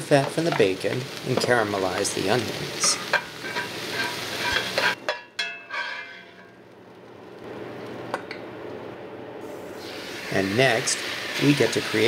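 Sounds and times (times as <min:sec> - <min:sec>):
bacon and onion sizzling in skillet: 0:00.0 - 0:07.5, 0:09.4 - 0:12.0
metal spatula scraping: 0:02.8 - 0:06.6.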